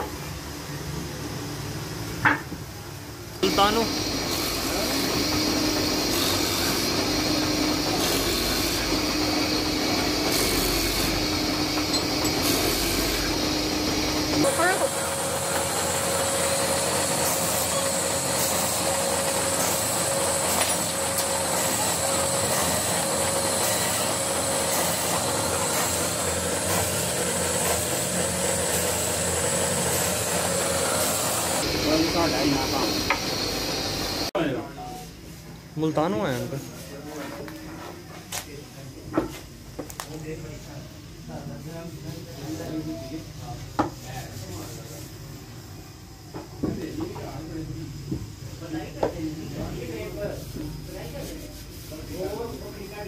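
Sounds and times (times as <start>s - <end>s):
drilling machine running: 3.4s - 34.3s
wood lathe humming: 3.4s - 34.3s
chisel shaving wood: 4.1s - 31.6s.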